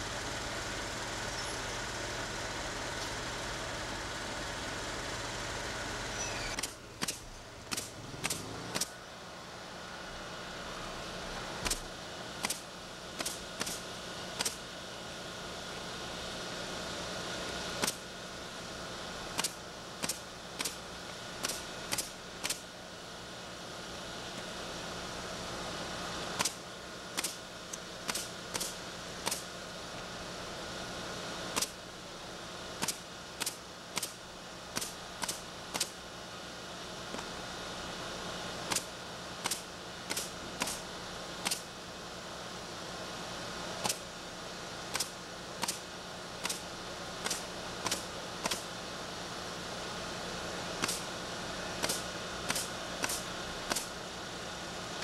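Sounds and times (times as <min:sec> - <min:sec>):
steady hum: 0:00.0 - 0:55.0
nails hammered into shingles: 0:51.8 - 0:53.9.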